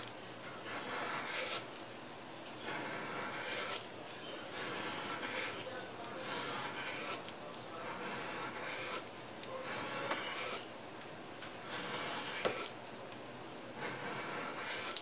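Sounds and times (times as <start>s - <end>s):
sandpaper rubbing on metal: 11.7s - 12.7s.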